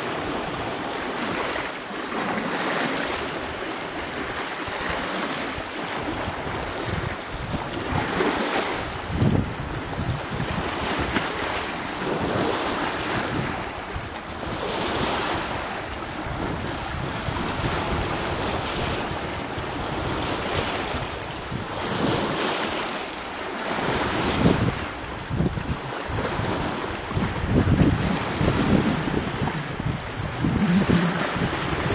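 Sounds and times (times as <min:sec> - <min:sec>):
waves splashing against boulders: 0:00.0 - 0:31.9
wind buffeting microphone: 0:05.9 - 0:22.4, 0:23.8 - 0:31.9.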